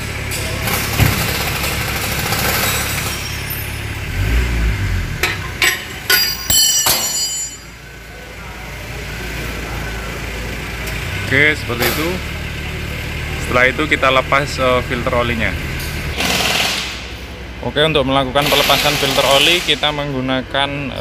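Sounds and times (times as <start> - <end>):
metallic spanner clinks: 1.7 - 4.0, 5.2 - 7.8.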